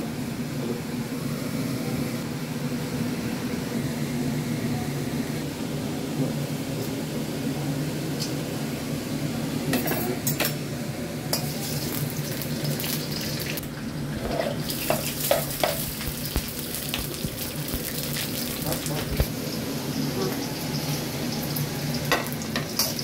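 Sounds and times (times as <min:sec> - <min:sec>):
spices sizzling in hot oil: 0:11.2 - 0:23.0
chillies knocking into pan: 0:14.8 - 0:19.3.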